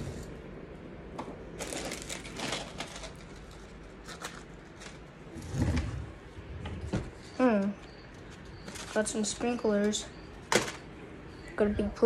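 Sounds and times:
rustling and crinkling: 1.5s - 10.8s.

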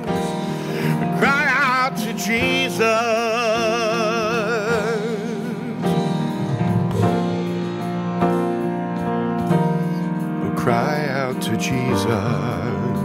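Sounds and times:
piano chords: 0.0s - 13.0s
man singing with vibrato: 0.7s - 6.4s, 10.4s - 13.0s.

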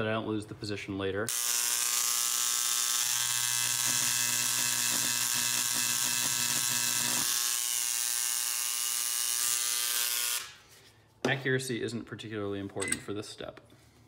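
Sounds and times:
electric engraver buzzing on metal: 1.3s - 10.6s.

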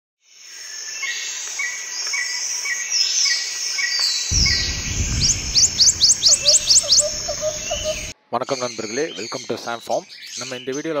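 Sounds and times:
insects chirping: 4.3s - 8.1s
low rumble: 4.3s - 8.1s
quick rising whistles: 4.3s - 8.1s
birdsong: 4.3s - 11.0s.

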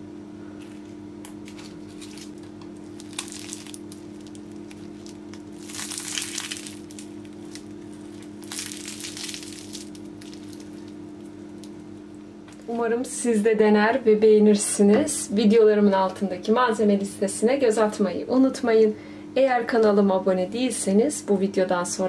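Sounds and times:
steady low hum: 0.0s - 22.0s
pastry crackling pulled apart: 1.2s - 11.9s.

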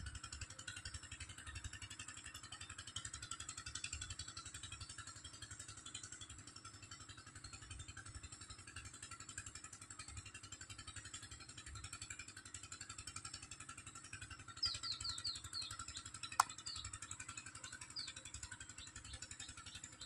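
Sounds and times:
bird chirping: 14.6s - 20.0s
sharp click: 16.4s - 16.7s.

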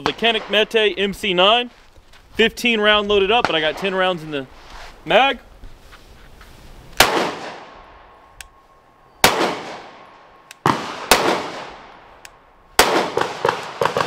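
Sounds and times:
pistol shots: 7.0s - 7.8s, 9.2s - 12.0s, 12.8s - 14.0s.

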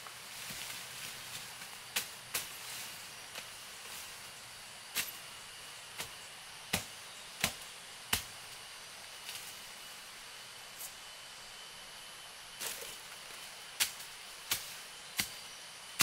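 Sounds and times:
high hiss: 0.0s - 16.0s
blade chopping bamboo: 6.0s - 8.4s, 13.8s - 15.4s.

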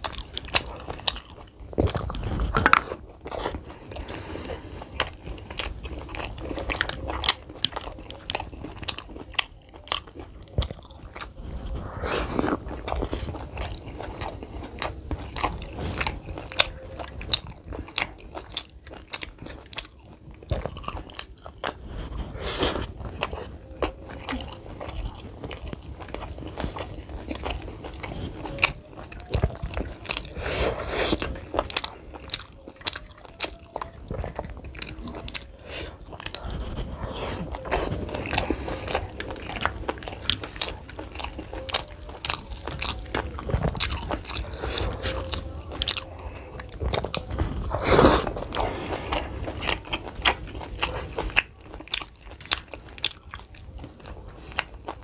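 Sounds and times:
man biting and chewing food: 0.0s - 55.0s.

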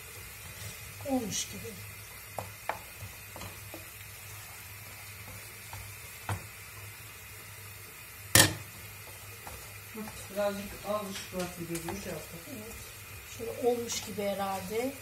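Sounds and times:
paste sizzling in a pan: 0.0s - 15.0s.

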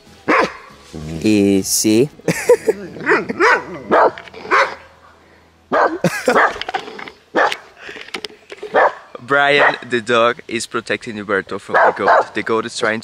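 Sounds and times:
dog barking: 0.3s - 0.7s, 3.0s - 5.0s, 5.7s - 6.6s, 7.3s - 7.7s, 8.7s - 9.9s, 11.7s - 12.4s.

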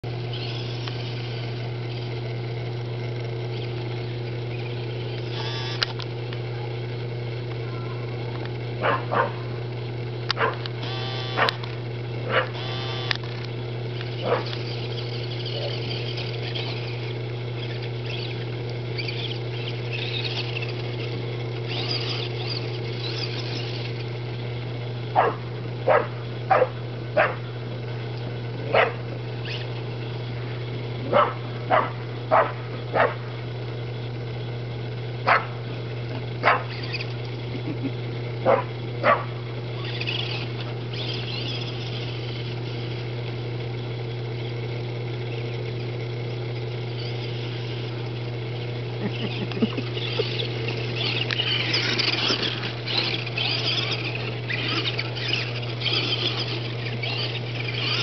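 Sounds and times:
steady low hum: 0.0s - 58.0s
dog barking: 8.8s - 9.4s, 10.4s - 10.6s, 12.3s - 12.6s, 14.2s - 14.5s, 25.2s - 27.4s, 28.7s - 29.0s, 31.1s - 33.2s, 35.3s - 35.5s, 36.4s - 36.7s, 38.4s - 39.3s.

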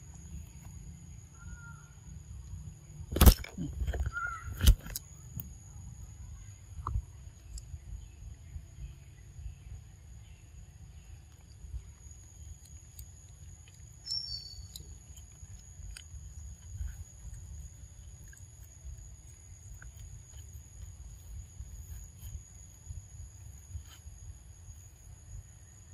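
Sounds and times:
high insect drone: 0.0s - 25.9s
two-note bird chirp: 14.1s - 14.7s.

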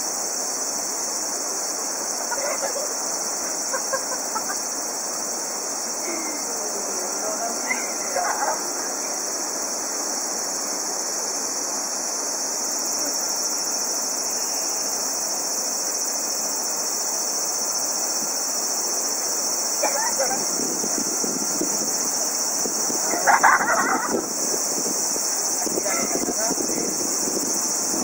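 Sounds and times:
insects trilling: 0.0s - 28.0s.

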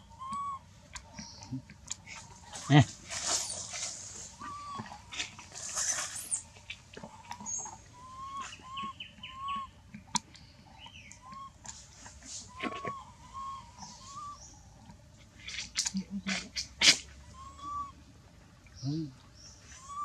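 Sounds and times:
whistled bird calls: 0.0s - 0.6s, 4.4s - 4.8s, 7.4s - 9.8s, 10.8s - 11.6s, 12.4s - 14.5s, 17.3s - 18.0s, 19.7s - 20.0s
rustling: 2.0s - 7.8s.

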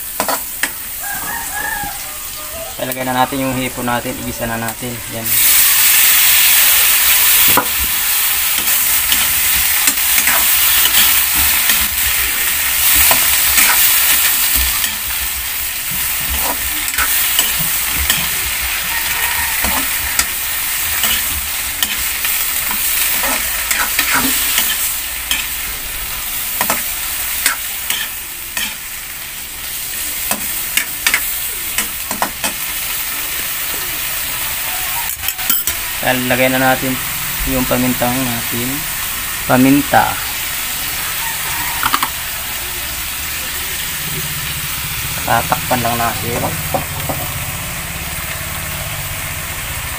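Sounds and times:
shrimp sizzling in wok: 0.0s - 49.9s
metal spatula scraping and clinking: 8.6s - 11.8s, 16.3s - 20.4s, 21.0s - 25.6s, 27.4s - 28.8s, 35.1s - 35.8s.

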